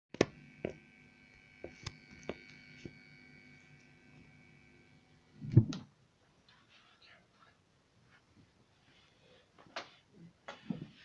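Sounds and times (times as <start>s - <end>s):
faint high whine: 0.2s - 5.7s.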